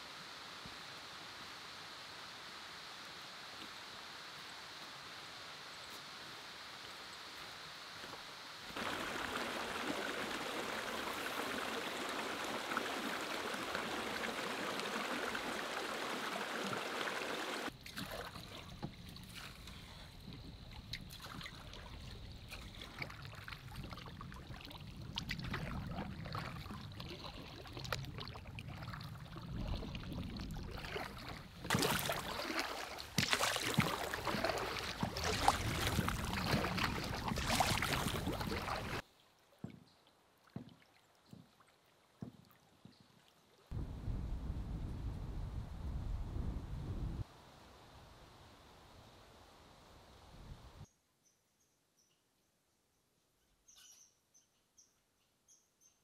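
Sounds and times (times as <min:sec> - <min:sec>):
flowing water rushing: 0:00.0 - 0:18.8, 0:21.6 - 0:39.0
paddle splashes: 0:08.7 - 0:43.3
water lapping around canoe: 0:08.7 - 0:43.6.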